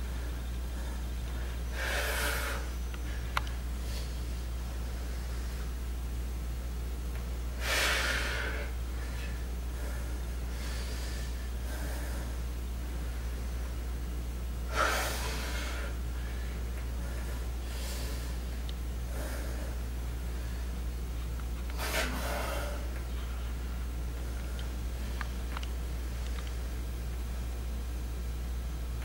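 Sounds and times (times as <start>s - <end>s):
man breathing hard: 0.0s - 5.8s, 7.6s - 13.6s, 14.7s - 20.8s, 21.7s - 23.6s
low hum: 0.0s - 29.0s.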